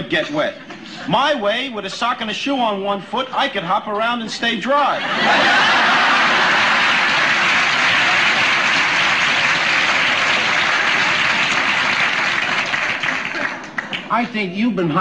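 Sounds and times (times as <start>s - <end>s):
audience laughing: 0.0s - 2.0s, 4.0s - 14.1s
audience applauding: 5.3s - 14.3s.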